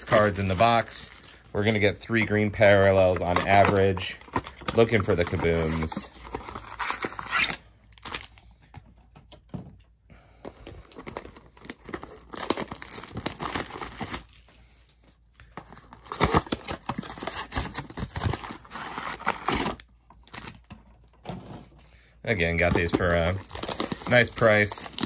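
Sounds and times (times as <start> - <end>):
packs tearing: 0.0 - 8.4, 10.6 - 14.5, 15.6 - 20.7, 22.4 - 25.0
plastic wrappers crinkling: 0.0 - 8.6, 10.4 - 14.8, 15.5 - 20.8, 22.3 - 25.0.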